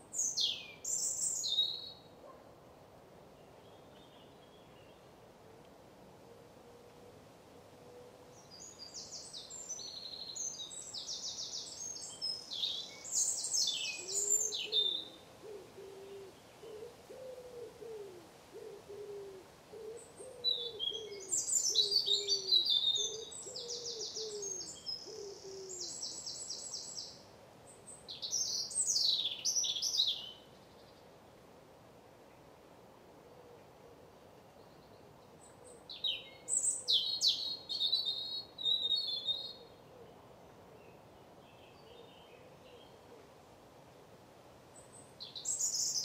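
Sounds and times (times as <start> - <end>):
bird trilling song: 8.4 - 15.2, 20.0 - 27.2, 27.9 - 30.4, 35.4 - 39.9, 44.9 - 46.0
low hooting bird call: 14.0 - 26.1.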